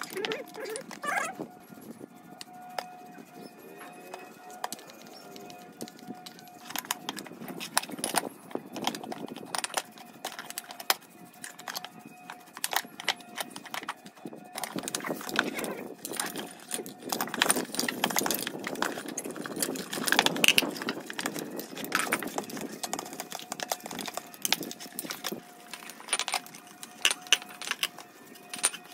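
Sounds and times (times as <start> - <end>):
brush scrubbing metal parts: 0.0 - 28.9
metal parts clinking: 3.8 - 28.9.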